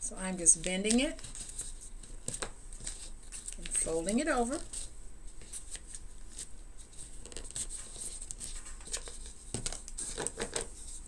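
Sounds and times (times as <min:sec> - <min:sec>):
paper rustling and crinkling: 0:00.6 - 0:11.0.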